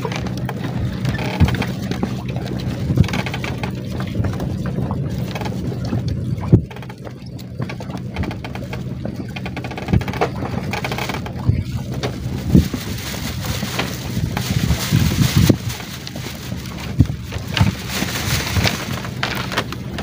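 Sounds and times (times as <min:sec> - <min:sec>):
motor humming low: 0:00.0 - 0:20.0
water: 0:00.0 - 0:20.0
dull knocks: 0:06.5 - 0:12.2
wind noise: 0:08.0 - 0:20.0.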